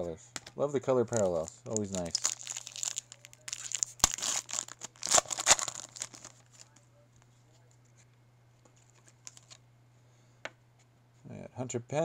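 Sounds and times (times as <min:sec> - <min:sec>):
steady low hum: 0:00.0 - 0:12.0
foil wrapper crinkling and tearing: 0:01.0 - 0:06.7.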